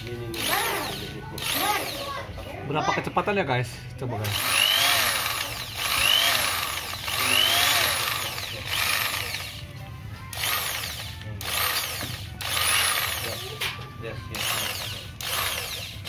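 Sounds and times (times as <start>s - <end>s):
electric drill motor whine: 4.3s - 16.0s.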